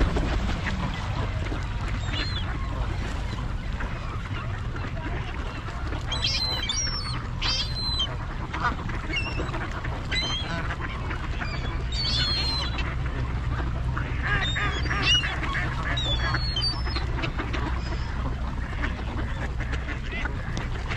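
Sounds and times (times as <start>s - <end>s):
steady low rumble: 0.0s - 12.0s
ducks quacking: 0.0s - 20.9s
geese honking: 0.0s - 20.9s.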